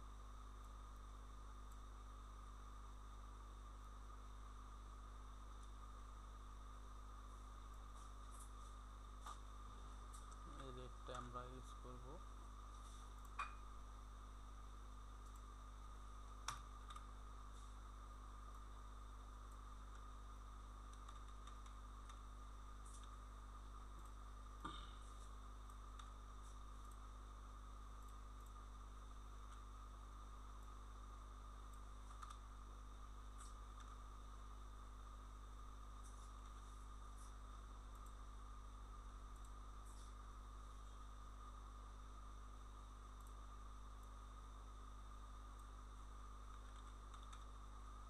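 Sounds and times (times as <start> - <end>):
electrical hum: 0.0 - 48.0
computer clicks: 20.9 - 22.2, 31.7 - 32.5, 46.5 - 47.5.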